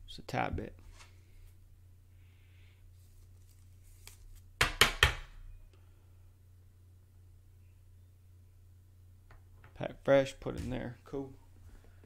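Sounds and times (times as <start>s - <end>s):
low steady hum: 0.0s - 4.6s, 5.2s - 12.0s.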